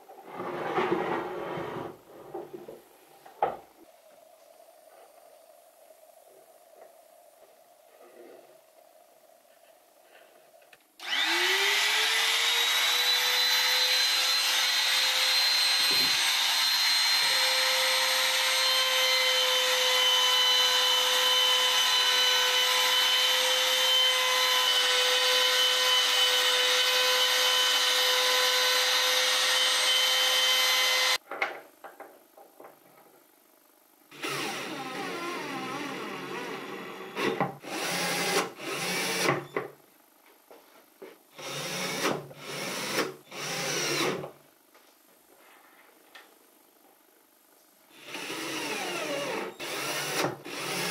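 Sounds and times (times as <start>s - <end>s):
cordless drill driving screws: 11.0s - 31.2s, 34.2s - 39.4s, 41.4s - 44.3s, 48.0s - 50.9s
router high whine: 11.0s - 31.2s, 48.0s - 50.9s.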